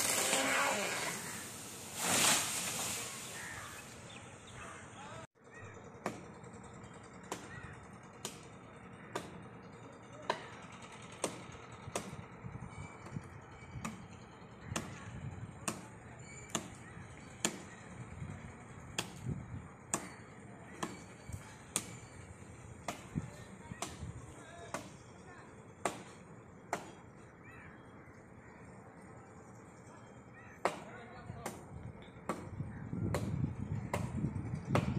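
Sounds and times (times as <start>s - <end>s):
blade chopping into tree: 0.0s - 1.4s, 25.8s - 27.0s.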